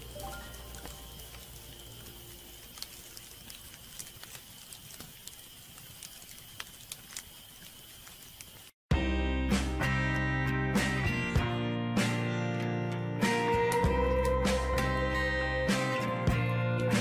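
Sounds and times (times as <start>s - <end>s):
wood fire crackling: 0.0s - 8.8s
background music: 8.9s - 17.0s.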